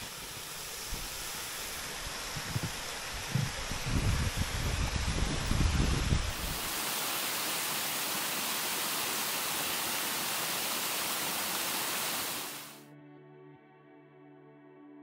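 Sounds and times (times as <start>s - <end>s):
steady rushing hiss: 0.0s - 12.8s
wind buffeting microphone: 1.9s - 6.7s.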